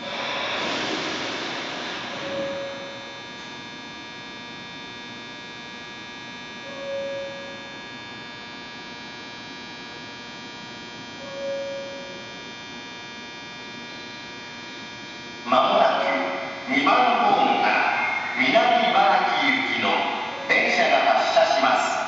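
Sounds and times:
steady electrical hum: 0.0s - 22.0s
short beep: 2.2s - 3.3s, 6.7s - 7.8s, 11.2s - 12.4s.

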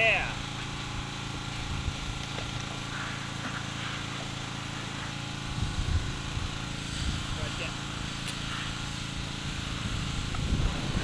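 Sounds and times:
motor engine running: 0.0s - 11.0s
low rumble: 8.9s - 11.0s.

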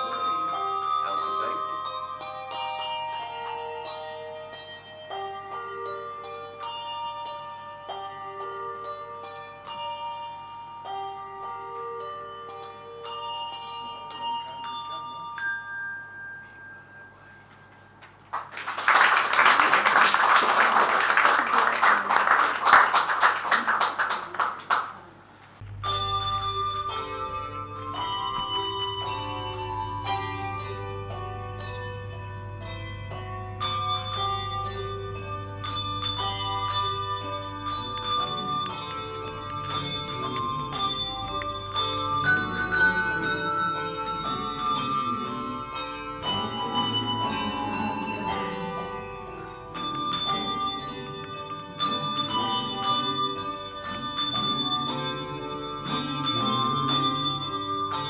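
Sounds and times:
handbells ringing: 0.0s - 18.5s, 25.8s - 58.0s
audience applauding: 18.0s - 25.2s.

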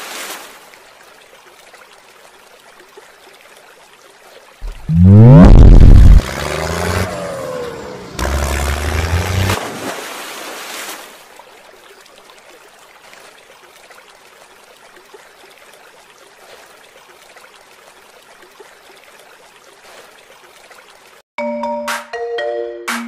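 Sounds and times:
water trickling: 0.6s - 7.6s, 11.2s - 21.2s.

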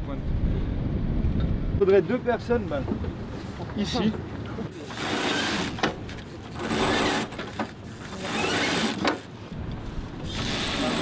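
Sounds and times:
wind buffeting microphone: 0.0s - 4.4s.

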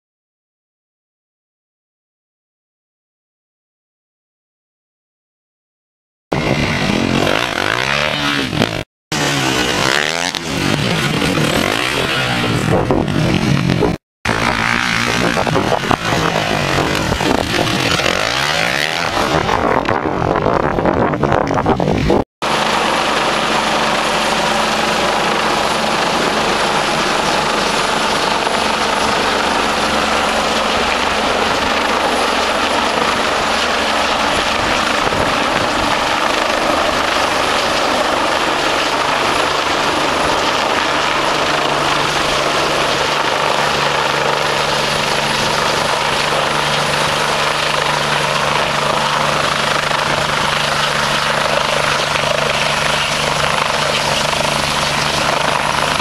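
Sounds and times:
helicopter engines and rotor: 6.3s - 56.0s.

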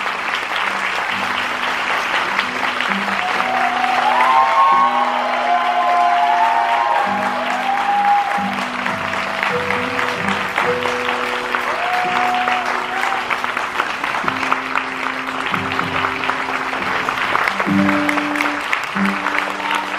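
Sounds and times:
audience applauding: 0.0s - 19.9s
slow music of held notes: 6.8s - 19.9s.

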